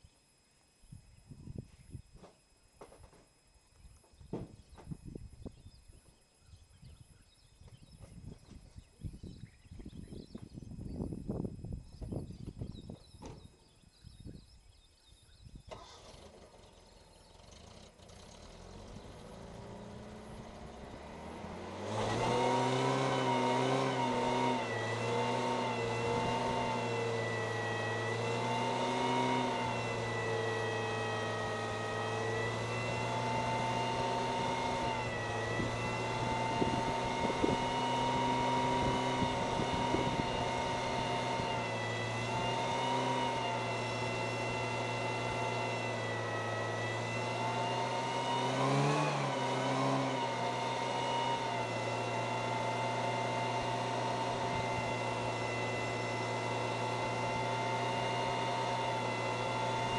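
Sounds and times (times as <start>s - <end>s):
car engine revving: 15.7s - 59.9s.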